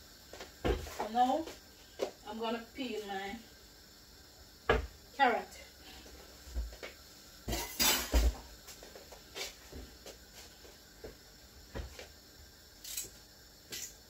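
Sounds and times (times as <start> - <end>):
utensils and dishes clattering: 7.5 - 8.2.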